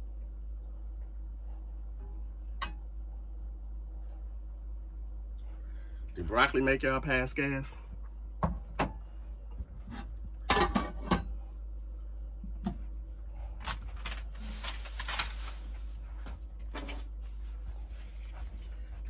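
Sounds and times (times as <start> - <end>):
low steady hum: 0.0 - 19.0
dishes clinking and knocking: 10.0 - 11.4.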